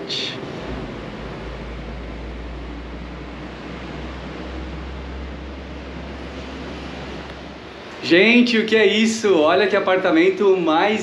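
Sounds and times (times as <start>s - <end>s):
low rumble: 0.0s - 8.4s.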